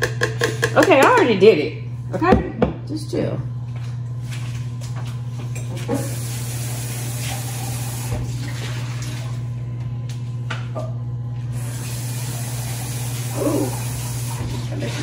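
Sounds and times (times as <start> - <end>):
juicer motor humming: 3.6 - 15.0.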